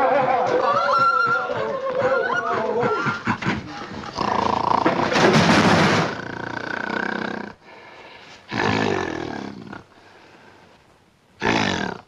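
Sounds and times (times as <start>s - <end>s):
gorilla roaring: 4.1s - 5.2s, 6.0s - 7.7s, 8.5s - 10.0s, 11.4s - 12.0s.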